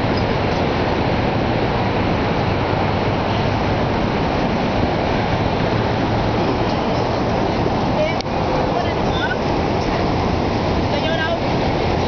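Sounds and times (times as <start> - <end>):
waterfall roaring: 0.0 - 12.0.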